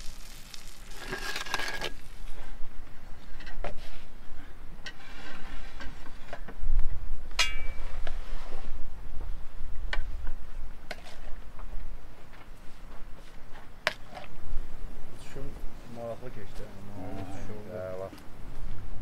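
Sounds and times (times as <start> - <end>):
cutlery clinking on metal: 7.4 - 7.8.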